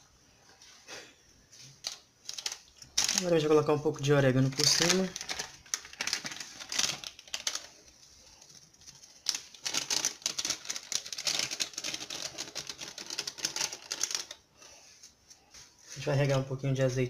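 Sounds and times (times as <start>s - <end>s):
dried herbs sprinkled crackling: 1.5s - 16.9s.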